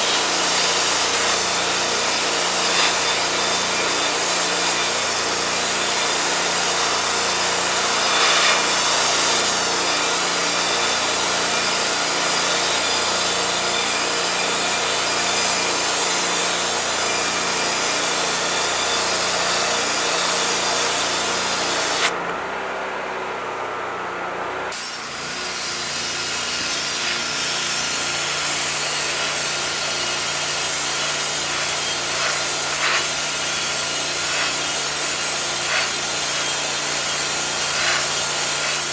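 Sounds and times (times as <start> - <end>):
pressure washer spray hiss: 0.0 - 12.5, 24.8 - 38.9.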